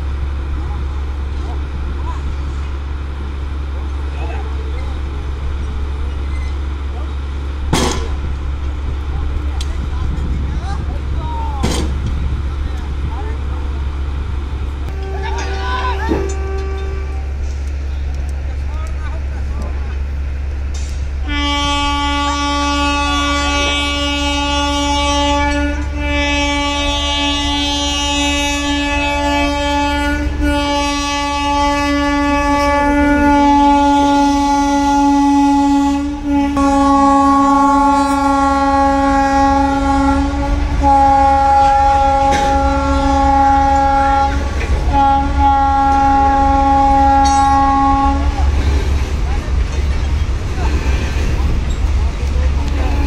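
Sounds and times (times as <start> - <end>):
train horn blasts: 14.9 - 17.5, 21.2 - 48.7, 52.5 - 53.0.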